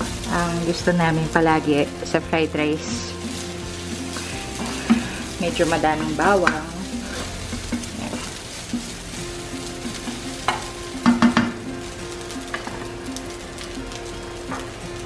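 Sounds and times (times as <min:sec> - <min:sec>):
plastic spatula scraping a pan: 0:00.0 - 0:14.0
rice sizzling in a pan: 0:00.0 - 0:15.0.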